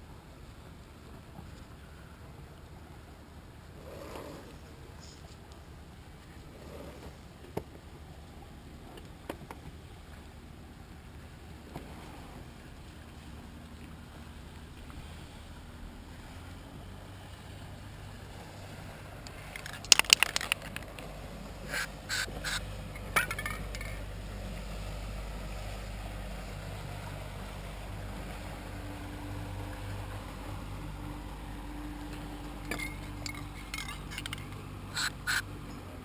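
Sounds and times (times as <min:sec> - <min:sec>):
steady low rumble: 0:09.7 - 0:36.0
metal parts clinking and scraping: 0:23.0 - 0:24.0, 0:32.7 - 0:35.4.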